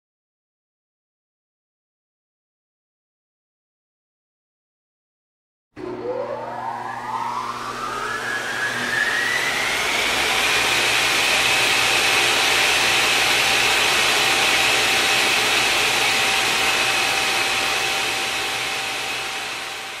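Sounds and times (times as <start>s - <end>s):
low tone: 5.8s - 10.0s
rushing hiss with rising whine: 6.0s - 20.0s.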